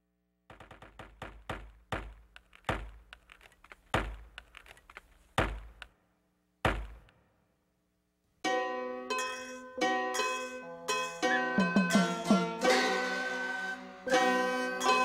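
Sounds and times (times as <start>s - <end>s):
axe chopping wood: 0.5s - 3.2s, 3.8s - 4.6s, 5.3s - 5.8s, 6.6s - 7.1s.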